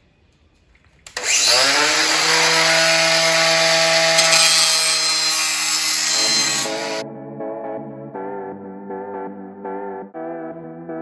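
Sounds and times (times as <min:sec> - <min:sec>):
angle grinder grinding steel: 0:01.1 - 0:07.0.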